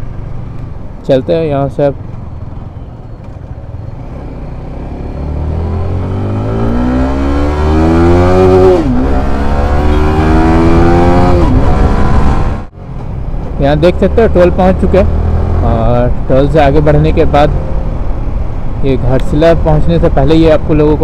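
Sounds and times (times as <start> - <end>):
motorcycle engine accelerating: 3.6 - 12.7, 14.5 - 16.0.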